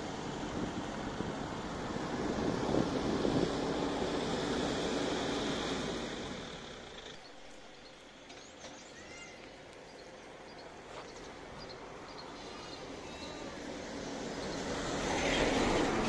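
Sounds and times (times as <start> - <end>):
bird chirps: 7.2 - 13.5.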